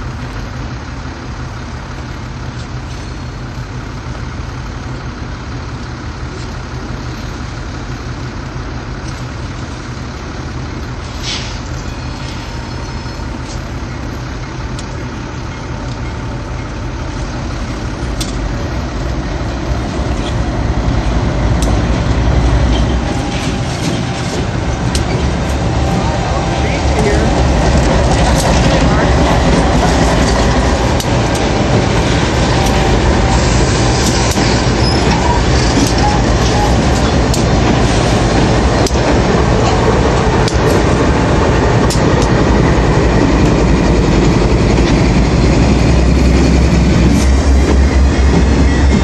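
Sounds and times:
diesel locomotives rumbling past: 0:00.0 - 0:49.0
brief hiss: 0:11.1 - 0:11.7.

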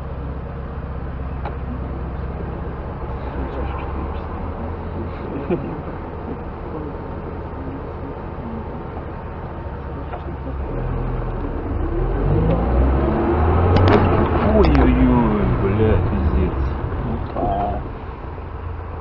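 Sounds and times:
car engine idling: 0:00.0 - 0:19.0
traffic pulling away: 0:00.0 - 0:19.0.

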